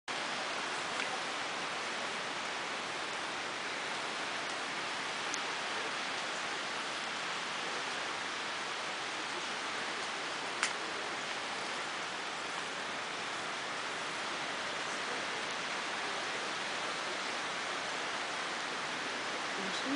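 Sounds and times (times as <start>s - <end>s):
steady hiss: 0.1s - 19.9s.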